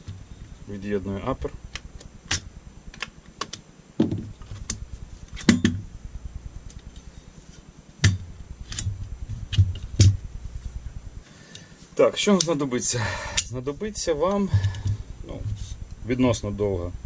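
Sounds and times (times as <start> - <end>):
dull knocks: 4.0 - 4.6.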